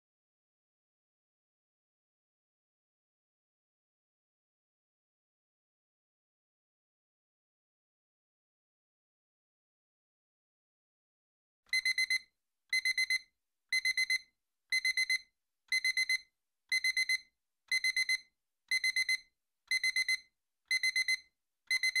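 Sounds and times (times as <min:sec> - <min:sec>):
timer alarm beeping: 0:11.7 - 0:22.0.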